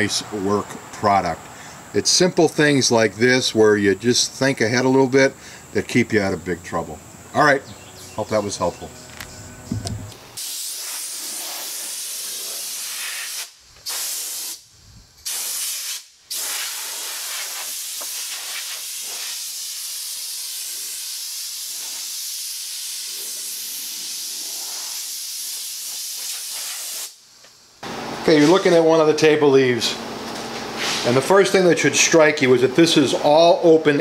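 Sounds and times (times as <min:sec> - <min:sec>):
air blow gun hissing: 0:08.2 - 0:27.2.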